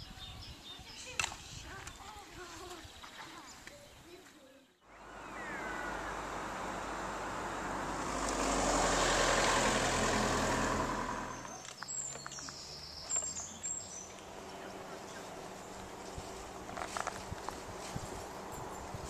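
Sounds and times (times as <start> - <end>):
car driving past: 4.9 - 19.0.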